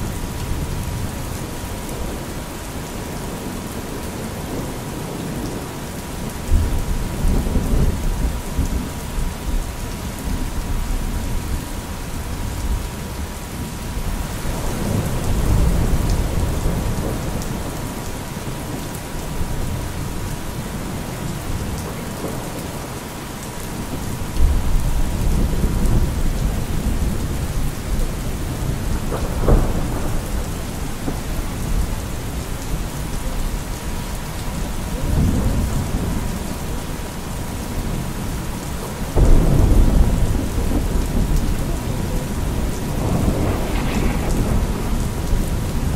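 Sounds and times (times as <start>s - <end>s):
steady rain: 0.0s - 45.9s
thunder rolling: 24.4s - 32.2s, 39.1s - 45.9s.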